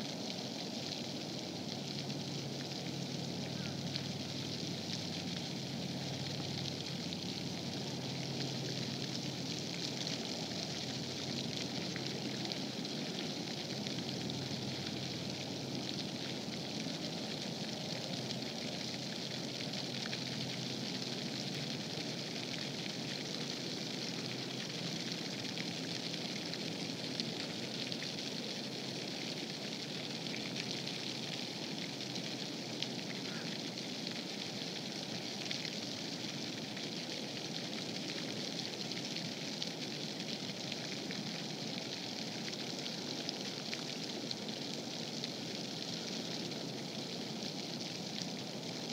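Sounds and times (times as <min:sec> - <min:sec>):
faint crackle: 0:00.0 - 0:48.9
outdoor background hiss: 0:00.0 - 0:48.9.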